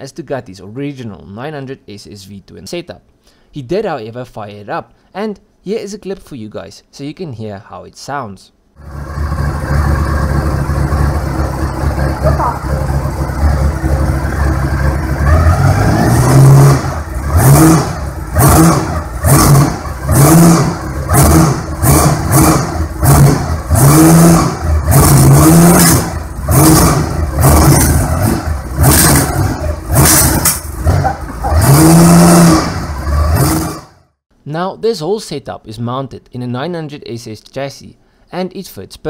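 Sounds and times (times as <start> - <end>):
motorcycle engine revving: 8.8 - 34.1.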